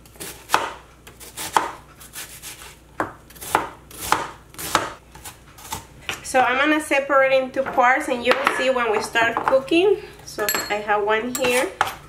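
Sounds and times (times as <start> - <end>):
knife slicing onion: 0.0 - 6.2.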